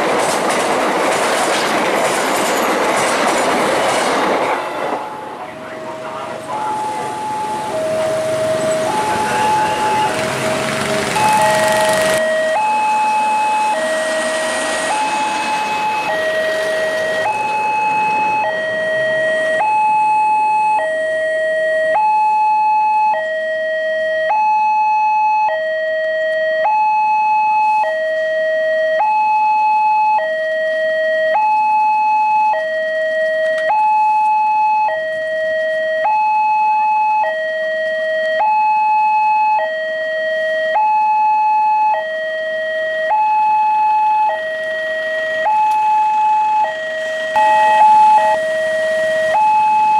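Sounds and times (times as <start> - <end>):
passing train rumble: 0.0 - 19.9, 44.5 - 49.9
level crossing two-tone alarm: 5.2 - 49.9.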